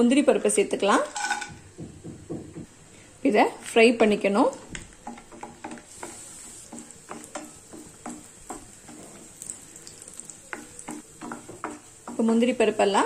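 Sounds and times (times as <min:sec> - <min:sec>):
nuts sizzling in a pan: 0:04.0 - 0:13.0
wooden spatula scraping and tapping: 0:04.5 - 0:13.0.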